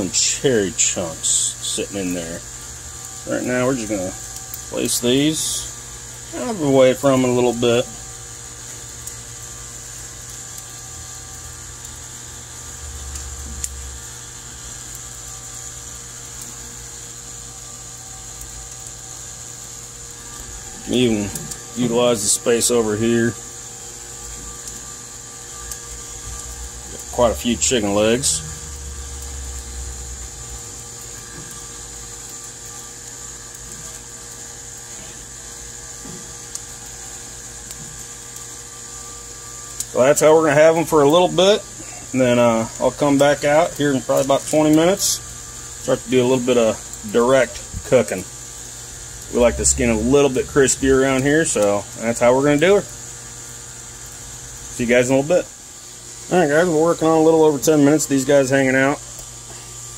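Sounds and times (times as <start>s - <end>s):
high-pitched whine: 0.0s - 9.3s, 17.4s - 53.0s
low hum: 16.2s - 33.2s, 41.6s - 57.7s.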